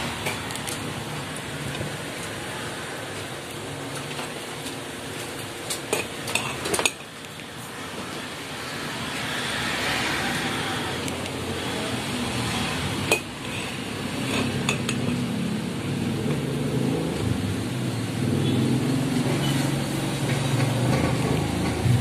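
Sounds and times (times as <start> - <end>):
metal spoon scraping a plate: 13.1 - 15.2.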